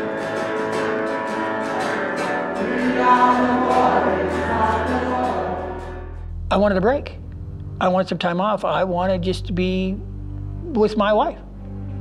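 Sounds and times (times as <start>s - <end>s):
choir singing long notes: 0.0s - 6.3s.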